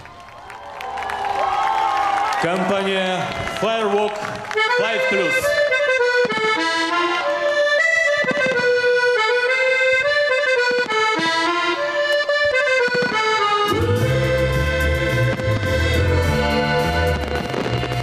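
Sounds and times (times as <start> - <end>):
accordion melody: 4.2 - 18.0
bass and band accompaniment: 4.5 - 18.0.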